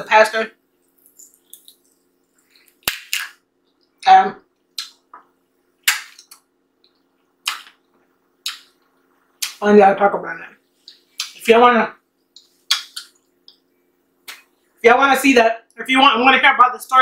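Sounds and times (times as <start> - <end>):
wet smacks and sucks from licking fingers: 0.8 - 3.9, 4.8 - 5.0, 8.4 - 9.6, 12.4 - 13.6
sharp mouth click: 4.8 - 5.0, 7.4 - 7.8, 8.4 - 8.8, 10.9 - 11.4, 12.4 - 13.6.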